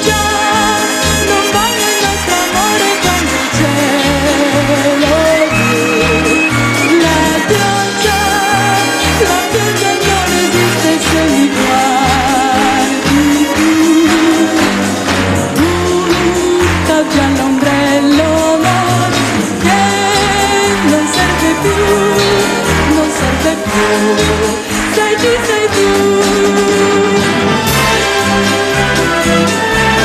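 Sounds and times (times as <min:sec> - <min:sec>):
orchestra playing pop music: 0:00.0 - 0:30.0.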